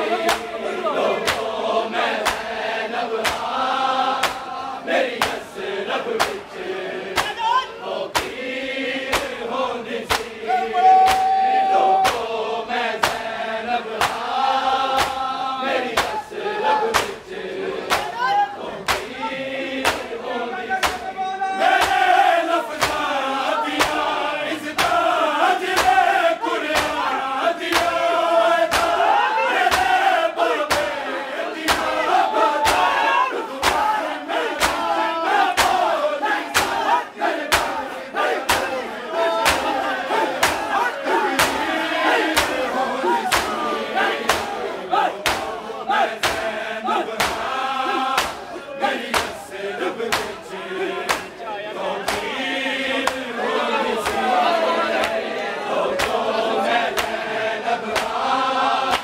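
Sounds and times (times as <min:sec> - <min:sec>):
crowd of men chanting: 0:00.0 - 0:59.0
hands striking chest in beat: 0:01.2 - 0:01.5, 0:02.2 - 0:02.6, 0:03.2 - 0:03.6, 0:04.2 - 0:04.5, 0:05.2 - 0:05.4, 0:06.2 - 0:06.5, 0:07.1 - 0:07.5, 0:08.1 - 0:08.4, 0:09.1 - 0:09.4, 0:10.1 - 0:10.3, 0:12.0 - 0:12.3, 0:13.0 - 0:13.3, 0:14.0 - 0:14.3, 0:14.9 - 0:15.3, 0:15.9 - 0:16.2, 0:16.9 - 0:17.2, 0:17.9 - 0:18.2, 0:18.8 - 0:19.1, 0:19.8 - 0:20.1, 0:20.8 - 0:21.0, 0:21.8 - 0:23.1, 0:23.8 - 0:24.1, 0:24.7 - 0:25.1, 0:25.7 - 0:26.1, 0:26.7 - 0:27.1, 0:27.7 - 0:28.0, 0:28.6 - 0:29.1, 0:29.7 - 0:30.0, 0:30.7 - 0:31.0, 0:31.7 - 0:32.0, 0:32.6 - 0:33.0, 0:33.6 - 0:37.8, 0:38.4 - 0:38.8, 0:39.4 - 0:43.6, 0:44.2 - 0:44.6, 0:45.2 - 0:45.6, 0:46.2 - 0:46.5, 0:47.2 - 0:49.4, 0:50.1 - 0:50.4, 0:51.1 - 0:51.4, 0:52.1 - 0:52.3, 0:54.0 - 0:54.2, 0:56.9 - 0:57.2, 0:57.9 - 0:58.2.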